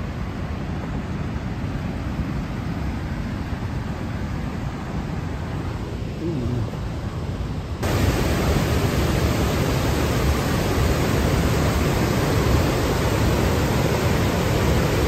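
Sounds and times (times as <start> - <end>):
whitewater rushing over rocks: 7.8 - 15.0.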